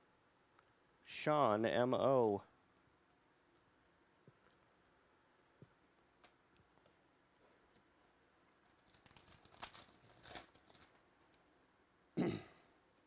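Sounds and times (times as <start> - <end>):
foil wrapper tearing and crinkling: 8.6 - 11.3.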